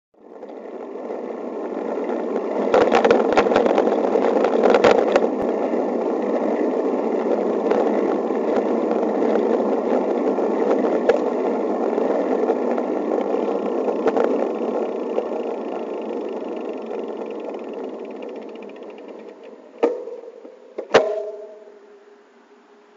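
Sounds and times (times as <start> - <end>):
bike rolling noise: 0.2 - 21.7.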